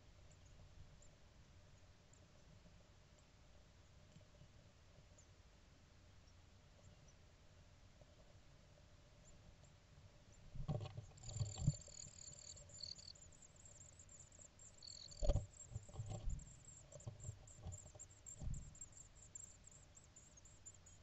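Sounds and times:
nestlings cheeping: 11.2s - 21.0s.

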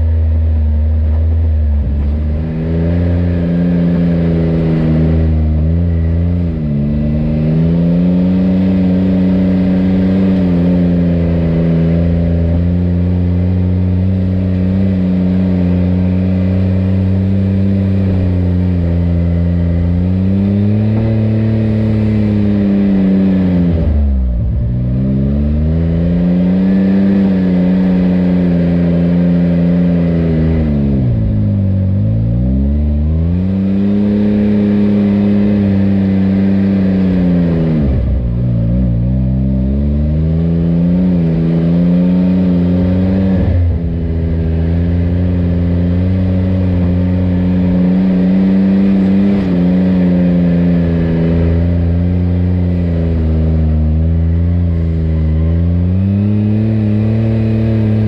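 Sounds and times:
utility vehicle engine revving: 0.0s - 58.0s.

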